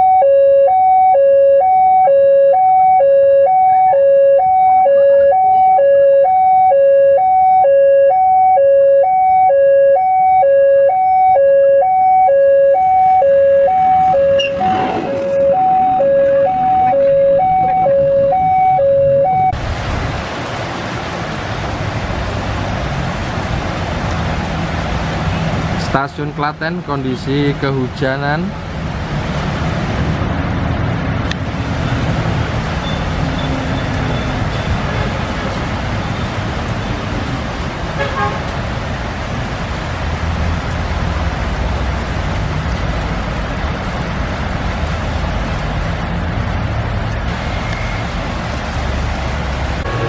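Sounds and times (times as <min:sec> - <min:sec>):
two-tone alarm: 0:00.0 - 0:19.6
heavy rain hissing: 0:19.6 - 0:26.0, 0:31.5 - 0:50.0.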